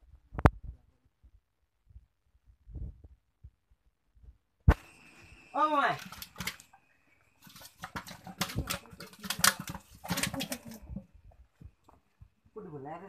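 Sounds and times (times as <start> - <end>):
metal pot knocking and rustling: 7.4 - 12.0.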